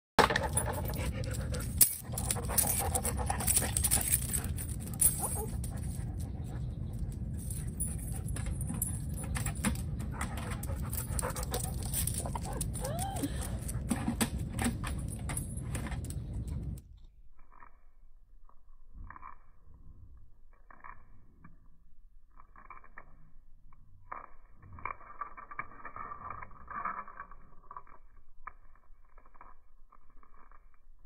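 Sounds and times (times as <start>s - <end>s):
dog panting: 0.5s - 9.3s.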